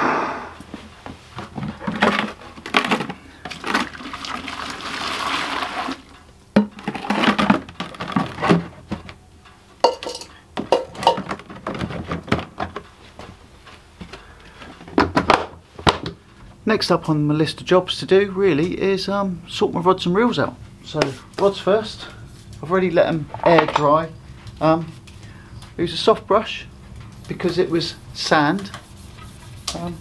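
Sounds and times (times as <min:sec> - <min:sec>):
hissing rush: 0:00.0 - 0:00.7
plastic bucket knocks and clatters: 0:01.4 - 0:04.2, 0:06.6 - 0:09.0, 0:10.6 - 0:12.8.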